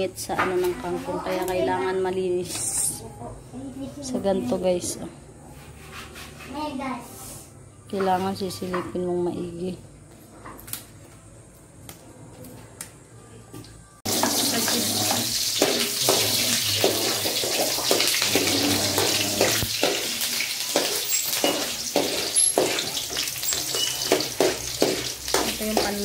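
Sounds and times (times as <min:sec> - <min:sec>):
metal spatula scraping a wok: 0:05.5 - 0:06.6, 0:14.1 - 0:26.0
garlic and onion sizzling in oil: 0:14.0 - 0:26.0.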